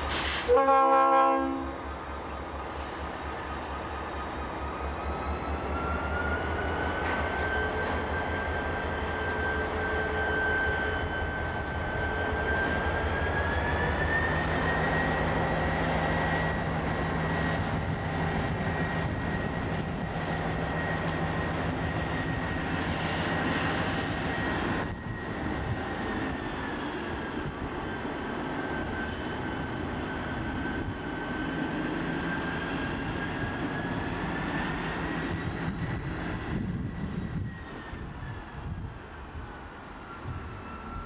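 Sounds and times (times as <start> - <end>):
high engine whine: 12.3 - 38.9.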